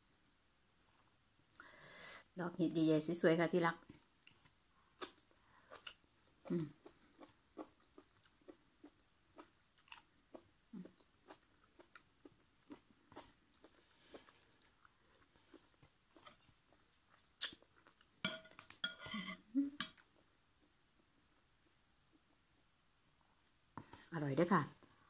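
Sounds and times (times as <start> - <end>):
person chewing: 4.2 - 18.9
spoon clinking on plate: 18.2 - 19.2.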